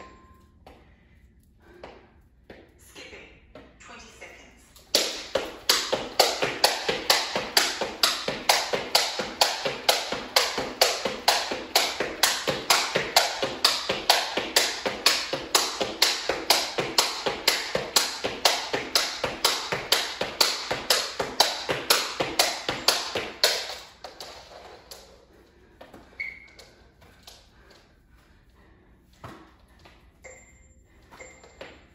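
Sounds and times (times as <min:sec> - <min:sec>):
jump rope slapping floor: 0:04.7 - 0:30.1.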